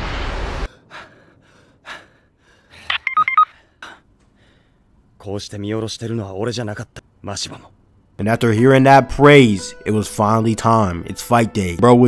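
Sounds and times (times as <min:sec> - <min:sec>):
punch rushing sound effect: 0:00.0 - 0:00.7.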